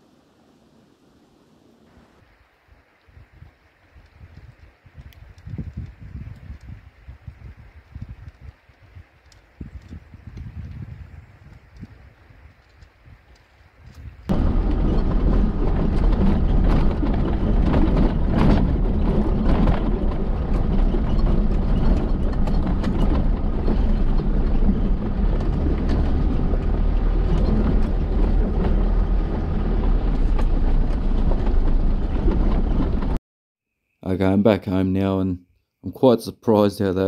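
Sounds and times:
engine and tyres rumbling on gravel: 7.5s - 33.2s
knocks and rattles over bumps: 14.3s - 33.2s.

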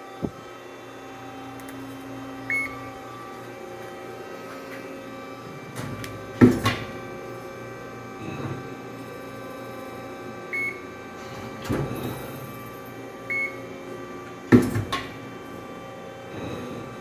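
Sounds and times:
machine clunks: 5.7s - 7.0s.

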